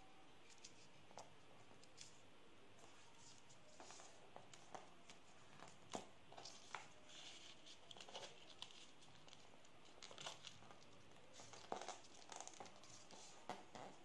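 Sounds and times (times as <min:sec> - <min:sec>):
paper rustling and crinkling: 0:06.4 - 0:13.4.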